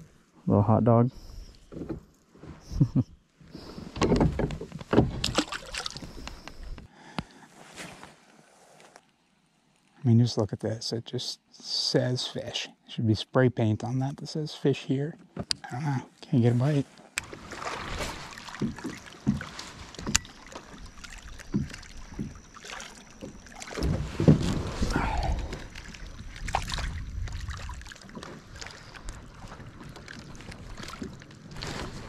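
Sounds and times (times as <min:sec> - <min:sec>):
water sloshing: 0:03.8 - 0:06.9, 0:17.2 - 0:32.0.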